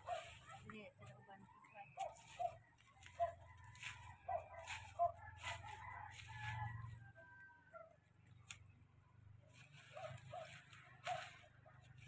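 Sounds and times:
rooster crowing: 0:05.0 - 0:07.8.

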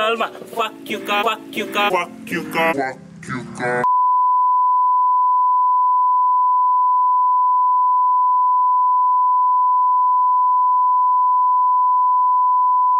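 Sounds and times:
sine test tone: 0:03.9 - 0:12.9.

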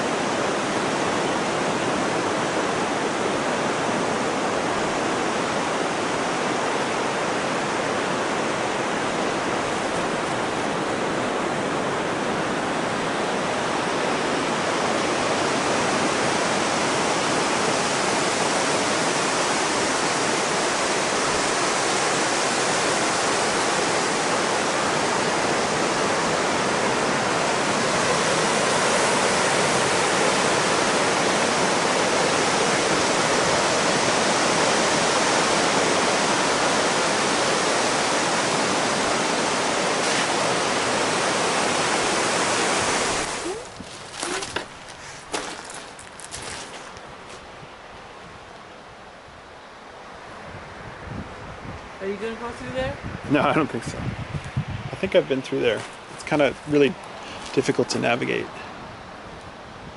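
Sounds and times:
surf on beach: 0:00.0 - 0:59.9
wind rushing: 0:52.5 - 0:55.2.

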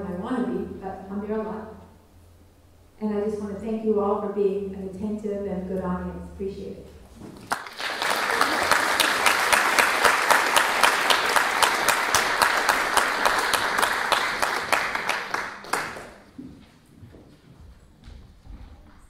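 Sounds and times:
audience applauding: 0:07.4 - 0:16.3.

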